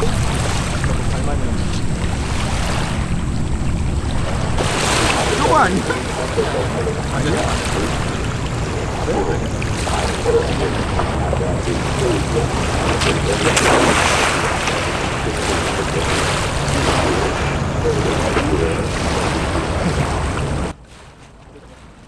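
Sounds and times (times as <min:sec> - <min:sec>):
wind on microphone: 0:00.0 - 0:21.1
sea washing on pebbles: 0:00.0 - 0:22.0
person splashing into water: 0:04.5 - 0:20.6.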